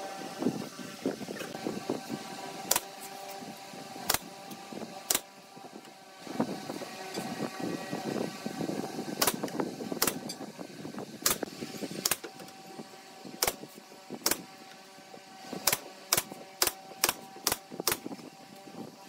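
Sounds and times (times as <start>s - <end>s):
nail gun firing into wood: 2.6s - 2.9s, 4.0s - 4.3s, 5.1s - 5.3s, 9.2s - 10.3s, 11.2s - 11.4s, 12.0s - 12.5s, 13.4s - 14.5s, 15.6s - 18.2s.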